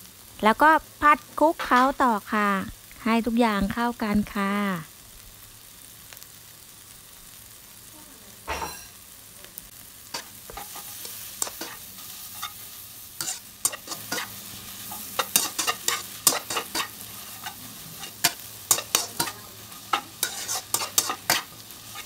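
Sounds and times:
faint sizzle: 0.0s - 22.0s
spatula scraping a wok: 8.5s - 9.0s, 10.1s - 22.0s.

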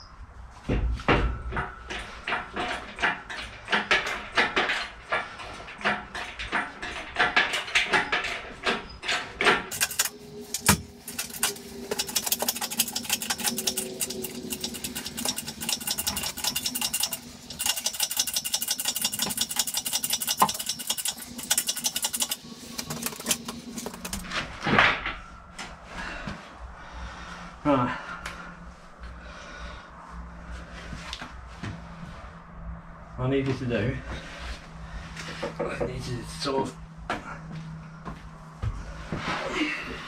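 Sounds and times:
metal clinks and knocks: 0.8s - 24.3s
casters and chain rattling: 1.7s - 24.3s.

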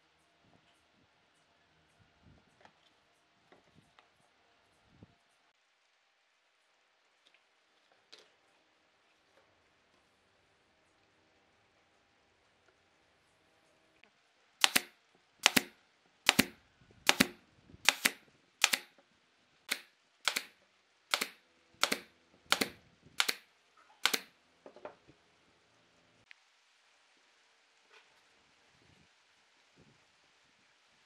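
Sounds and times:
brad nailer firing: 14.6s - 15.7s, 16.3s - 18.9s, 19.7s - 20.5s, 21.1s - 23.4s, 24.0s - 24.3s.

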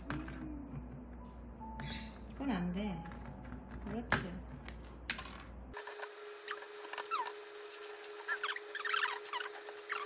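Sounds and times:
rapid high squeaky chirps: 6.4s - 10.0s.

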